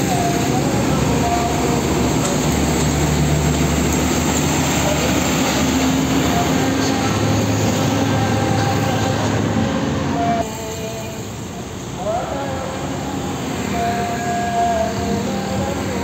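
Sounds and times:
road rumble: 0.0s - 16.0s
truck diesel engine passing: 0.0s - 16.0s.

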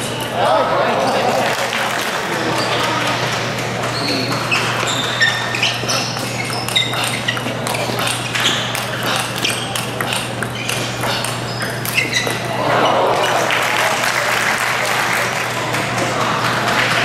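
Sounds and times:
shoes squeaking on floor: 2.4s - 13.4s.

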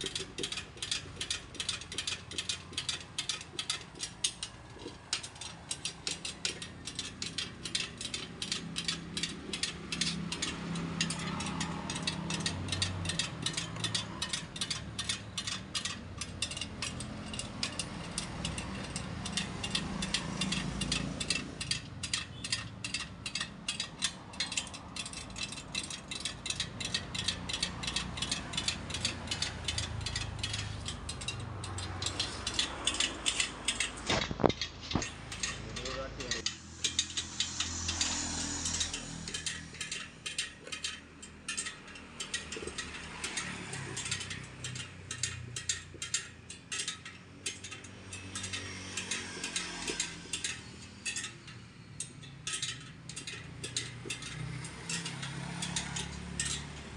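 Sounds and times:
metal spokes clinking: 0.0s - 56.9s
low hum: 31.0s - 40.6s.

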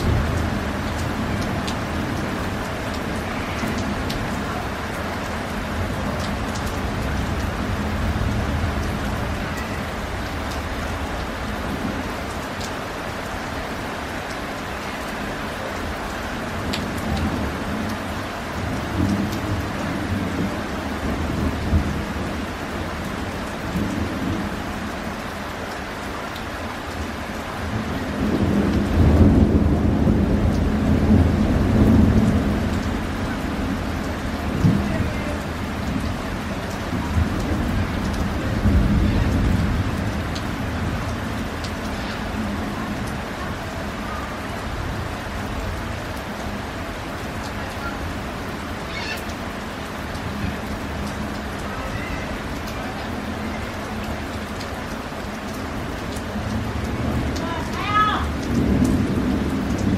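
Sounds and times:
steady rain: 0.0s - 59.9s
thunder rumbling: 27.7s - 46.3s, 56.3s - 59.9s.

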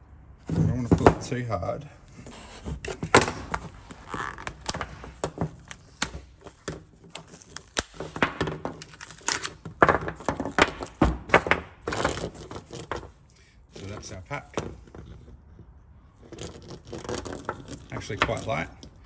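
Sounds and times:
plastic battery case cracking apart: 3.1s - 12.2s.

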